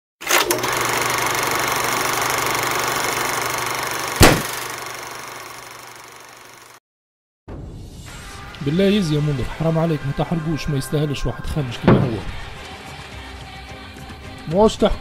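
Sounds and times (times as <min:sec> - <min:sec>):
sharp hit: 0:04.2 - 0:04.5.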